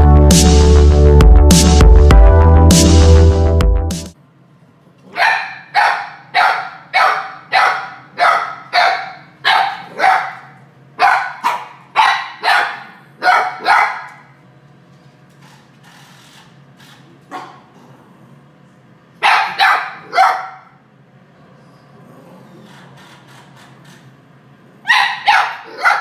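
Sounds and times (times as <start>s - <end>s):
dog barking: 5.1s - 14.3s, 17.3s - 17.7s, 19.2s - 20.8s, 24.8s - 26.0s.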